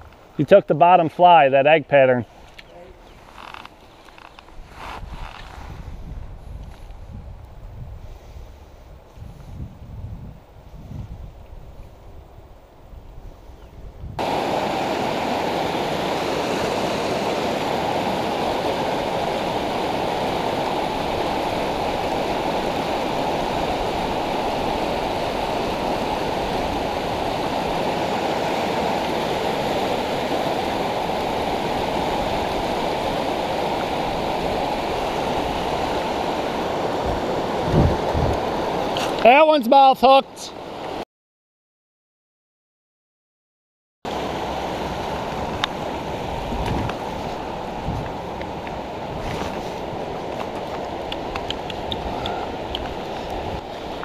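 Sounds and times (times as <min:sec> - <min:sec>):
creek rushing over rocks: 0:14.2 - 0:41.0, 0:44.1 - 0:54.0.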